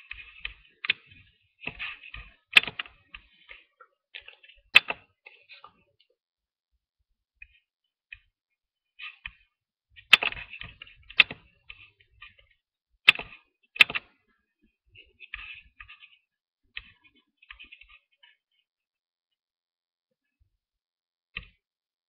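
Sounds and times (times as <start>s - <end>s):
keyboard typing: 0.0s - 5.4s.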